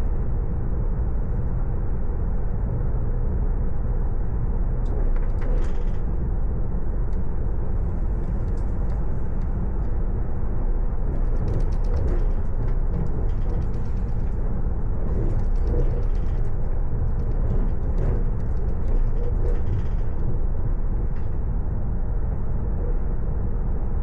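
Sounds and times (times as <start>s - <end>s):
train rumbling: 0.0s - 24.0s
faint ticking and rattling: 11.0s - 20.3s.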